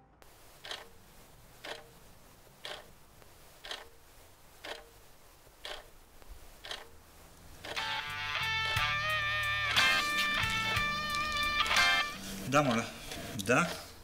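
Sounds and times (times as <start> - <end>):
clock ticking: 0.6 - 0.9, 1.6 - 2.0, 2.6 - 2.9, 3.6 - 4.0, 4.6 - 5.0, 5.6 - 5.9, 6.6 - 7.0, 7.6 - 13.9.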